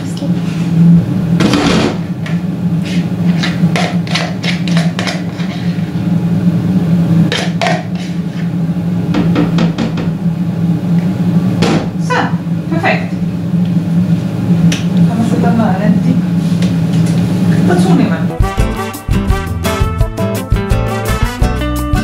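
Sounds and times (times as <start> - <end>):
utensil scraping ceramic bowls: 2.8 - 5.9, 7.4 - 8.5.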